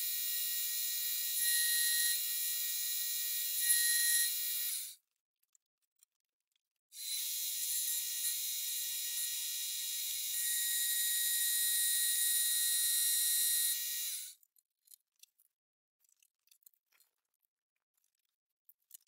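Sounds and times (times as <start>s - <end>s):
milling machine whine: 0.0s - 4.9s, 7.0s - 14.3s.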